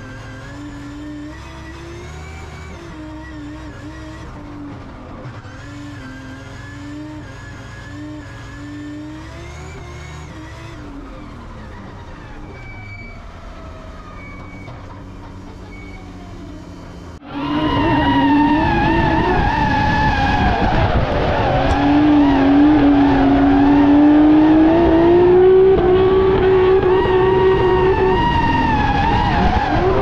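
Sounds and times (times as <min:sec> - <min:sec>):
car engine from inside cabin: 0:13.2 - 0:19.3, 0:20.7 - 0:30.0.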